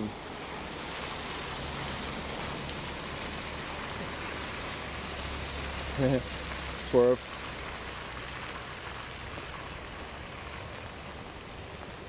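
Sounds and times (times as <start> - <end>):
low engine hum: 0.0 - 12.0
tyres hissing on wet road: 0.0 - 12.0.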